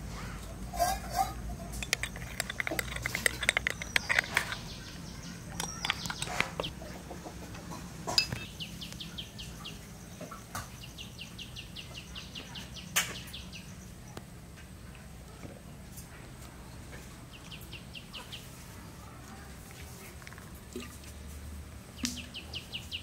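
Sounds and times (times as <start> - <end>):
spoon clinking against mug: 0.8 - 4.7, 5.4 - 6.7, 8.1 - 8.5.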